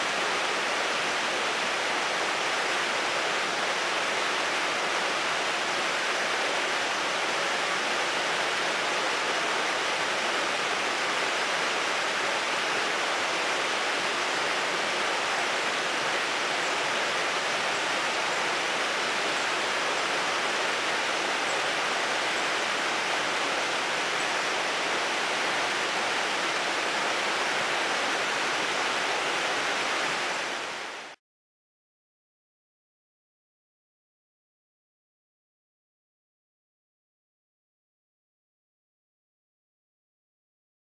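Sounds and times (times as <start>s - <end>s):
river rushing over rocks: 0.0s - 31.2s.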